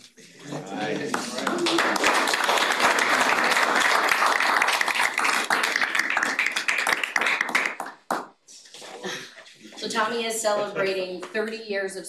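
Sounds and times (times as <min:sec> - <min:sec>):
people applauding: 0:00.6 - 0:08.4.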